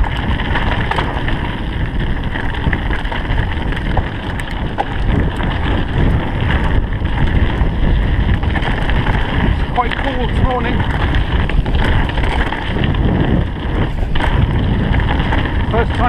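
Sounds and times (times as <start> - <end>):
bike rattling: 0.0 - 16.0
tyres rumbling on trail: 0.0 - 16.0
wind buffeting microphone: 0.0 - 16.0.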